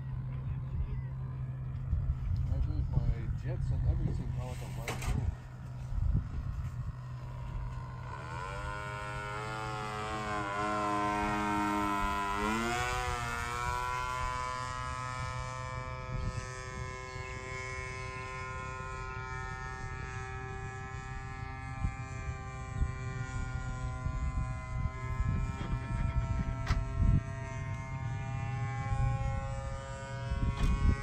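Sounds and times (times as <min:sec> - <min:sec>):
model airplane engine buzzing: 0:00.0 - 0:31.0.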